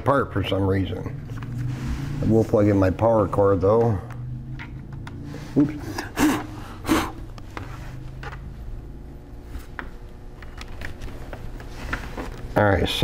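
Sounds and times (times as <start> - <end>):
low steady hum: 0.0 - 13.0
laptop being handled: 7.4 - 8.5, 9.5 - 12.5.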